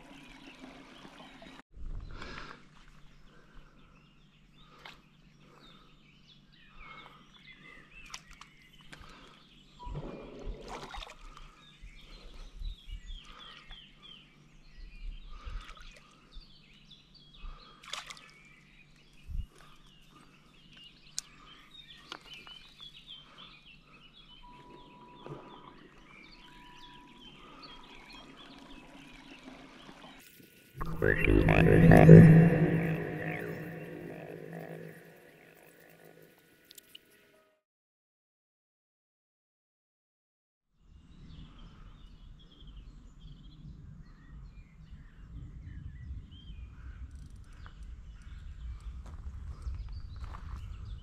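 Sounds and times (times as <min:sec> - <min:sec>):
birds chirping: 0:00.0 - 0:10.7, 0:11.3 - 0:30.2, 0:30.8 - 0:36.4
steady high tone: 0:30.8 - 0:36.2.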